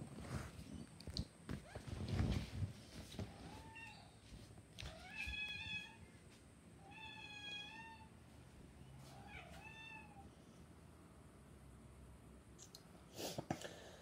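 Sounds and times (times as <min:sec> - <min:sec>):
cat meowing: 0:09.1 - 0:10.3.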